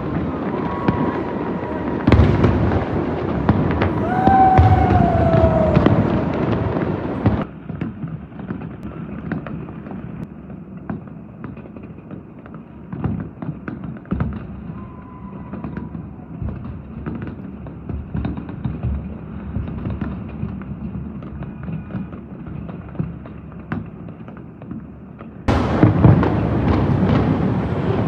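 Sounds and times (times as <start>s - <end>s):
fireworks bursts: 0.0s - 10.2s, 25.5s - 28.0s
distant fireworks and firecrackers popping: 0.0s - 28.0s.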